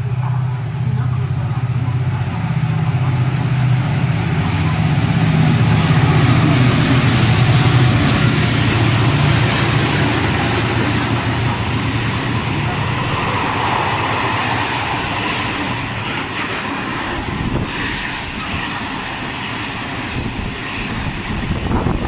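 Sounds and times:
diesel locomotive engine hum: 0.0s - 22.0s
train wheels on rails: 0.0s - 22.0s.

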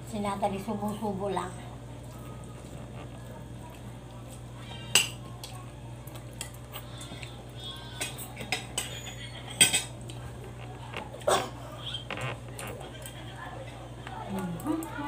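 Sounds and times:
low steady hum: 0.0s - 15.0s
utensils clinking on plates: 4.8s - 5.6s, 8.0s - 10.2s.

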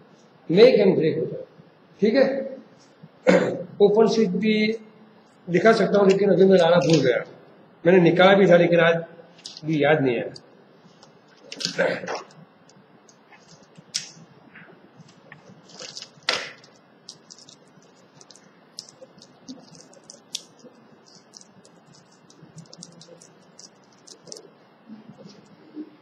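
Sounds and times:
small parts clicking and tapping: 15.1s - 24.4s.

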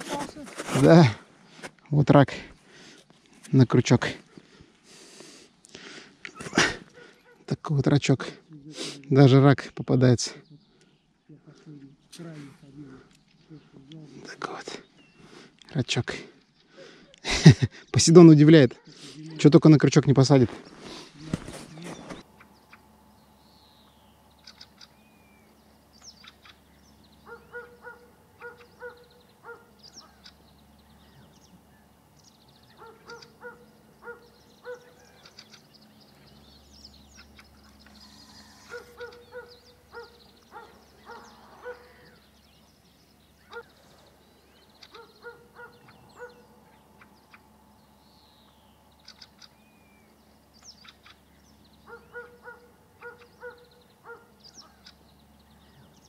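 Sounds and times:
faint bird calls: 20.5s - 56.0s.

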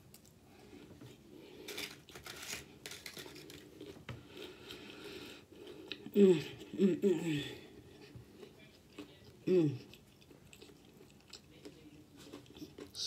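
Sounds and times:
chewing crisp chips: 1.6s - 6.1s, 8.3s - 13.0s.

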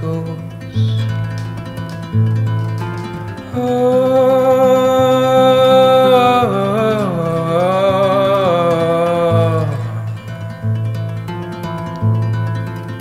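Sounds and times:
acoustic guitar: 0.0s - 13.0s
man singing long held note: 3.5s - 10.0s.

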